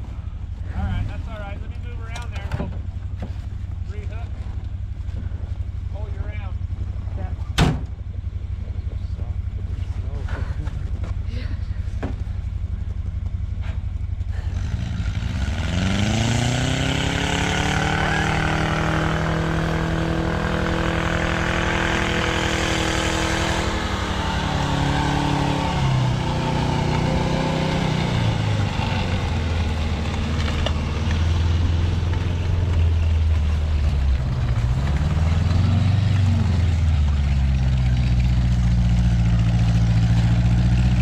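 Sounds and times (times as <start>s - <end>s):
snowcat engine revving: 13.6s - 41.0s.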